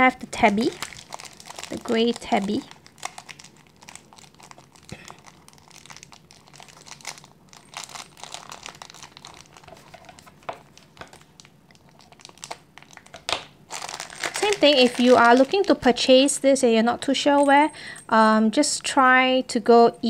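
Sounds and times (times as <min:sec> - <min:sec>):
plastic wrapping crinkling: 0:00.3 - 0:16.4
scissors cutting plastic bag: 0:00.6 - 0:10.2, 0:12.0 - 0:15.9.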